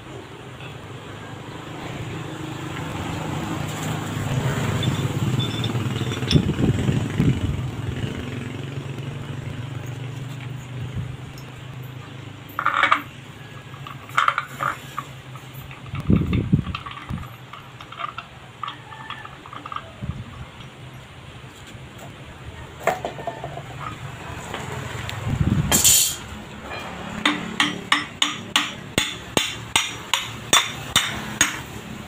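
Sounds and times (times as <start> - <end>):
vehicle engine passing by: 1.3 - 12.5, 23.2 - 27.6
metal clinks: 4.6 - 6.6, 9.7 - 19.9.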